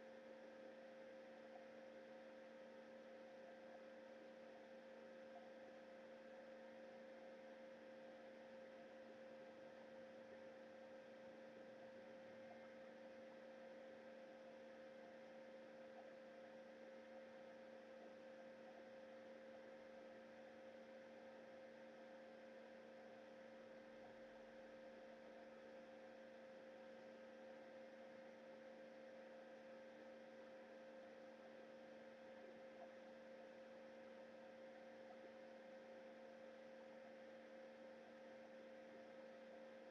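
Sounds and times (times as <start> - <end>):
faint electrical hum: 0.0 - 39.9.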